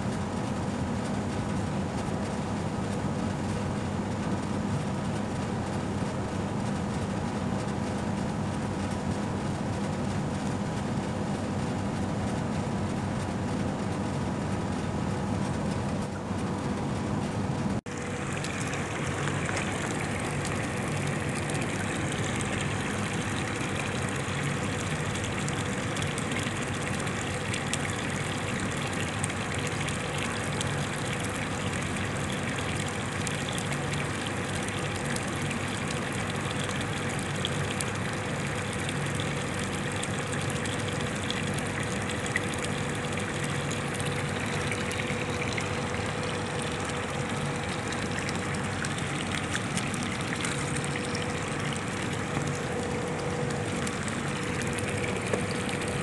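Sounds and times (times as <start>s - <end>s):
steady hum: 0.0s - 56.0s
water running into pond: 17.9s - 56.0s.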